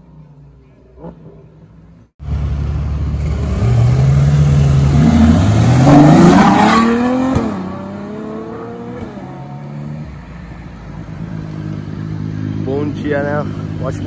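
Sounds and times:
faint car engine: 0.0 - 14.0
sports car accelerating hard: 3.2 - 10.1.

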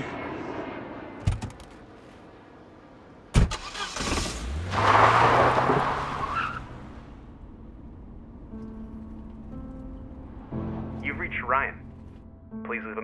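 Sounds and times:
car engine starting and revving: 3.4 - 11.0.

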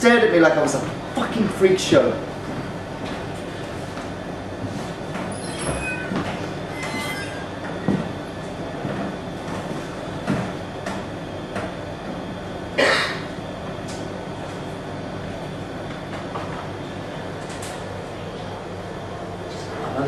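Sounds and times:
thin high squeals: 5.3 - 7.6.

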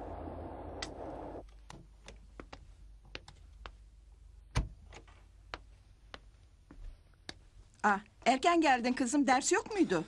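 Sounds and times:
car cabin road noise: 0.0 - 1.4.

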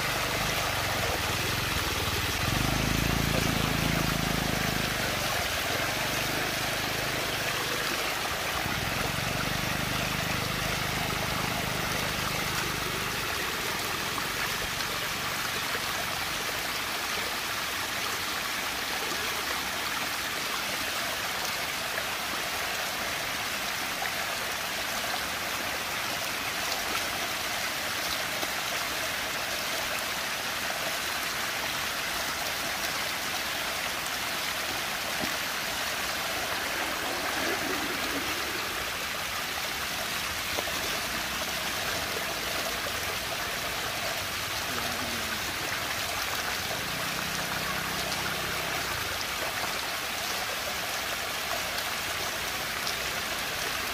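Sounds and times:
swirling water of whirlpool: 0.0 - 17.0, 32.5 - 49.9.

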